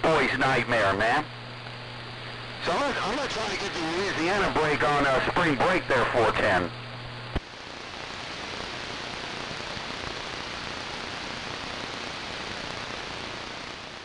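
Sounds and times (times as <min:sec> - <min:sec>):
radio static hiss: 0:00.0 - 0:14.0.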